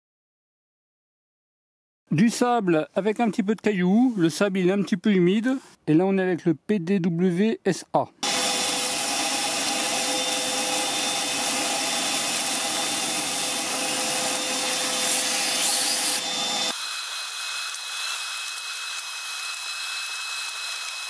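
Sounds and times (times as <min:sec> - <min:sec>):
vacuum motor whine: 0:08.2 - 0:21.0.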